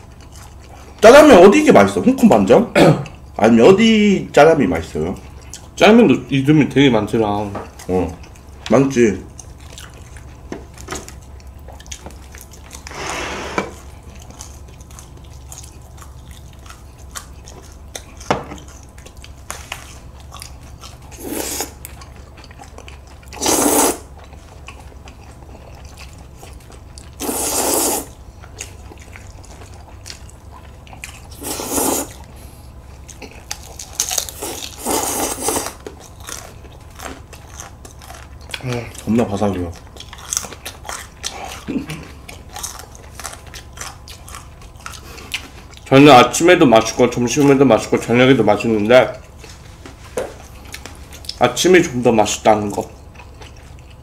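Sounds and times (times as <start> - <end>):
chewing: 0.0 - 1.9, 3.0 - 3.4, 4.7 - 54.0
noodles being slurped: 21.1 - 21.8, 23.3 - 24.1, 27.2 - 28.2, 31.2 - 32.3, 34.2 - 35.8.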